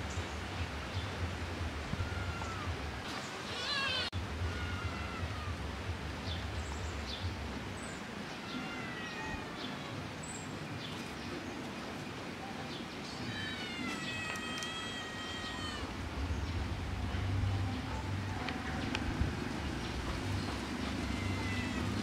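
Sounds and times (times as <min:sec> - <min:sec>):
kittens meowing: 0:02.0 - 0:02.7, 0:03.5 - 0:05.5, 0:08.4 - 0:09.7, 0:13.2 - 0:15.9, 0:20.8 - 0:22.0.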